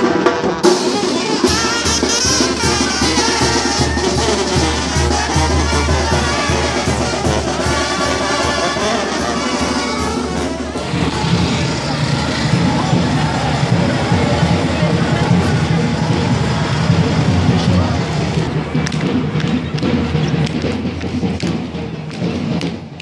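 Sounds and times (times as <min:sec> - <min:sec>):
trumpets and trombones: 0:00.0 - 0:18.6
drums: 0:00.0 - 0:23.0.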